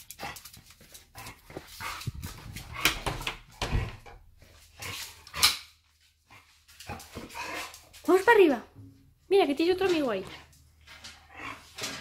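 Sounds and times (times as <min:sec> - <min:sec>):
scuffs and knocks on tiled floor: 0:00.6 - 0:05.1.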